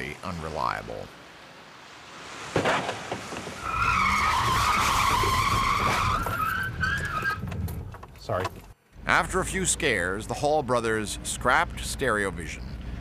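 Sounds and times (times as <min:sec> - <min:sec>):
tyres squealing in a skid: 0:03.4 - 0:07.8.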